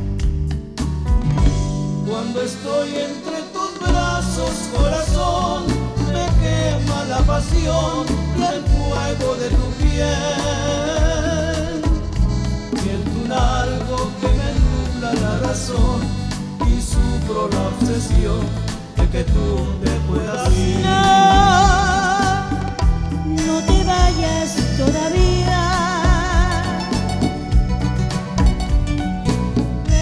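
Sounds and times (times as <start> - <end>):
bass line: 0.0 - 30.0
woman singing with vibrato: 2.1 - 12.2, 12.8 - 27.1
bongos tapped by hand: 4.8 - 17.3, 20.0 - 30.0.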